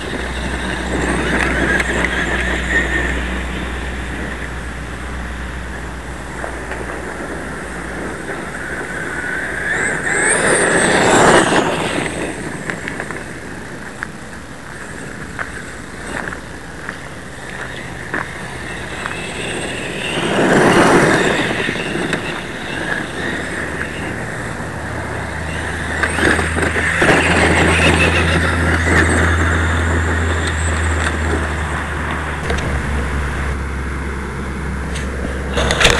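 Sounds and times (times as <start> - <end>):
rc truck on gravel: 0.0 - 35.9
low rumble: 16.6 - 35.9.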